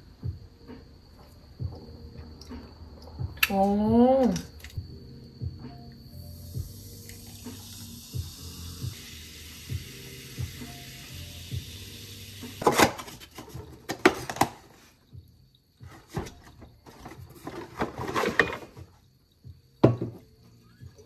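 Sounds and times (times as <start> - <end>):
utensils and dishes knocking on wood: 19.8 - 20.2.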